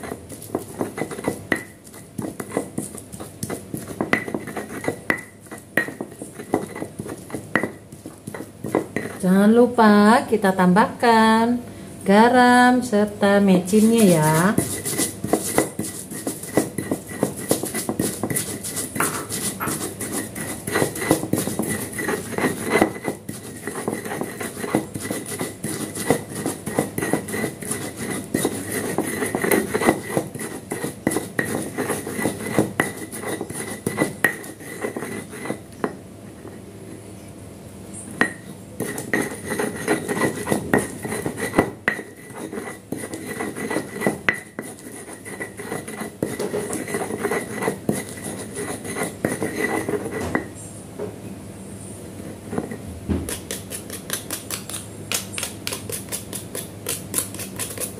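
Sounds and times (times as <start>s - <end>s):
stone pestle grinding on stone: 0.0s - 9.4s, 13.7s - 37.0s, 38.2s - 50.5s, 52.2s - 57.9s.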